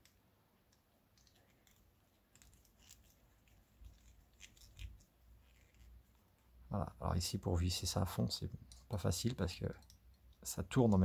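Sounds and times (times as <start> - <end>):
small plastic parts clicking: 0.0 - 5.9.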